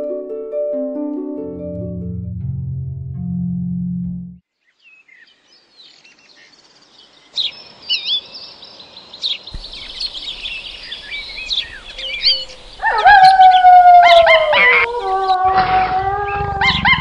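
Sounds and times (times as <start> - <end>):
small birds chirping: 4.6 - 17.0
steady low background noise: 8.5 - 15.4.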